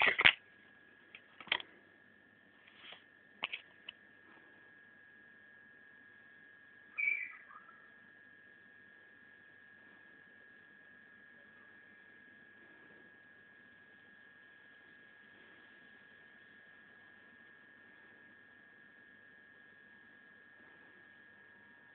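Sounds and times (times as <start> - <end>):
high-pitched whine: 6.6 - 18.7.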